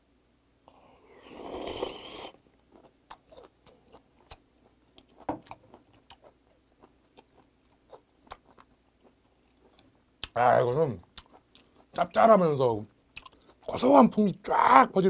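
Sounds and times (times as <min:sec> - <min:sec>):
chewing with mouth clicks: 0:02.3 - 0:10.4, 0:11.0 - 0:12.0, 0:13.1 - 0:13.7.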